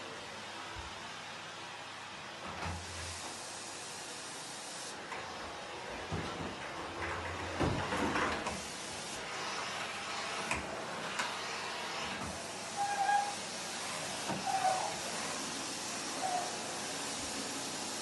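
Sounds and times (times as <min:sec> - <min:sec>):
vacuum cleaner running: 0:00.0 - 0:18.0.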